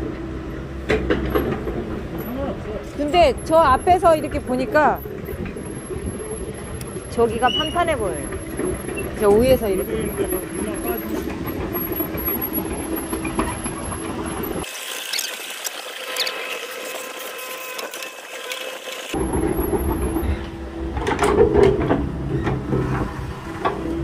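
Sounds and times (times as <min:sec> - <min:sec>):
excavator diesel engine running: 0:00.0 - 0:14.6, 0:19.0 - 0:24.0
metallic squealing: 0:02.1 - 0:15.3.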